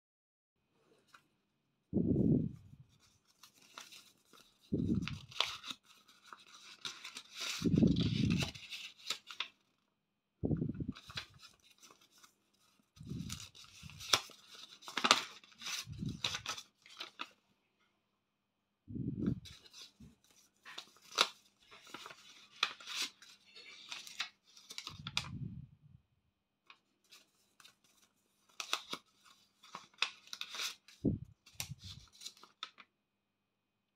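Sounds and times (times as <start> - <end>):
paper rustling and crinkling: 2.4 - 9.8, 10.8 - 17.4, 19.2 - 25.4, 26.6 - 32.9
dull low thumps: 10.4 - 10.9, 18.9 - 19.4.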